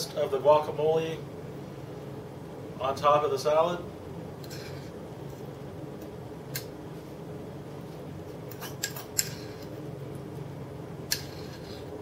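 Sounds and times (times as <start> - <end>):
utensil scraping and tapping: 11.1 - 12.0.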